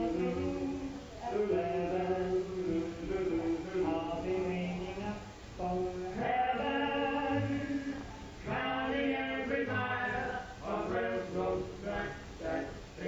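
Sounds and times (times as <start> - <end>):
group singing in harmony: 0.0 - 13.0.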